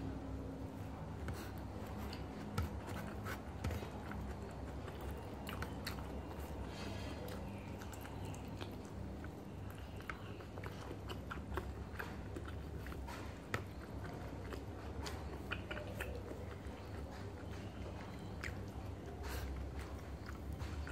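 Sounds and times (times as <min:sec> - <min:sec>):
steady low hum: 0:00.0 - 0:20.9
person chewing close to microphone: 0:00.1 - 0:20.9.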